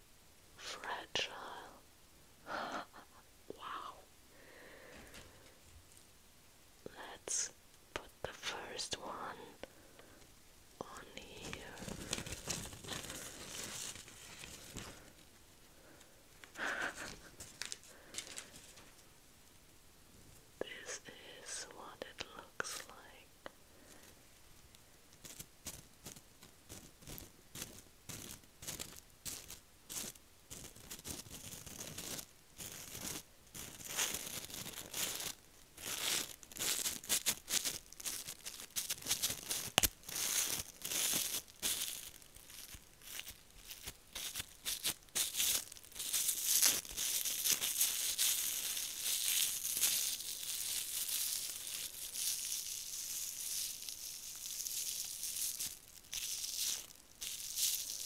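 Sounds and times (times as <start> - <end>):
foil crinkling in slime: 11.0 - 15.3, 16.6 - 18.9, 25.1 - 58.0.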